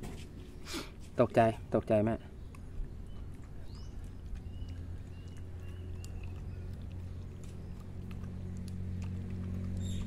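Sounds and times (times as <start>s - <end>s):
low mechanical hum: 0.0s - 10.0s
dog chewing and lapping: 2.3s - 10.0s
bird chirps: 2.4s - 8.4s, 9.7s - 10.0s.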